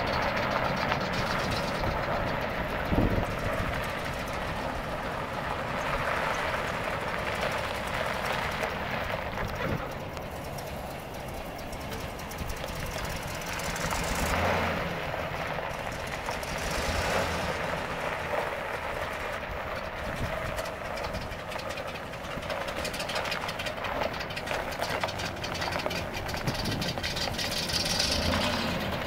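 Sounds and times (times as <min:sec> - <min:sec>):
truck engine running: 0:00.0 - 0:29.0
tyres crunching over gravel: 0:00.0 - 0:29.0.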